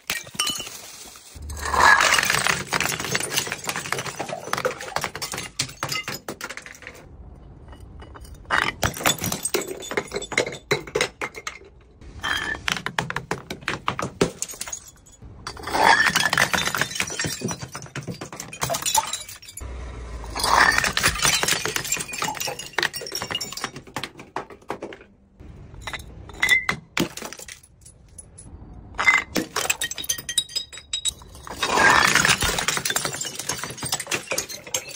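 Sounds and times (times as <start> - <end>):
glass shards tinkling: 0.0 - 6.8, 14.4 - 19.6, 20.3 - 23.8, 25.8 - 34.9
glass bottles tumbling and shattering: 0.0 - 19.6, 20.2 - 25.0, 25.7 - 34.9.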